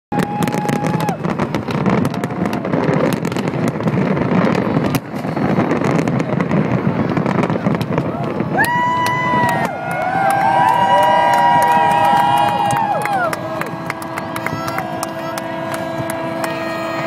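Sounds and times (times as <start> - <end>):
fireworks bursting and crackling: 0.1 - 17.0
boat horns: 10.4 - 17.0
steady horn tone: 11.3 - 17.0.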